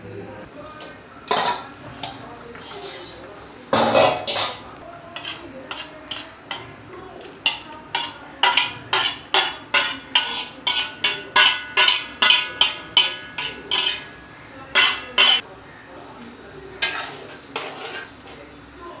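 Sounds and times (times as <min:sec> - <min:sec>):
metal bowl knocking on pan: 0:07.5 - 0:14.1, 0:14.8 - 0:15.4.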